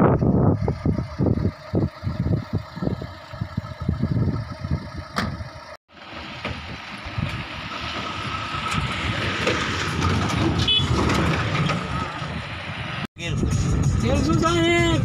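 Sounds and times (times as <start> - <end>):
car engine running: 0.0 - 7.5
road noise: 0.0 - 15.0.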